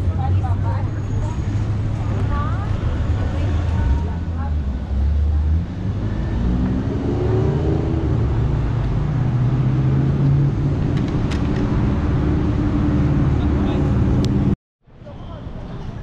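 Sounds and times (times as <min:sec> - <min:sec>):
road rumble: 0:00.0 - 0:16.0
vehicle engine speeding up: 0:03.0 - 0:14.6.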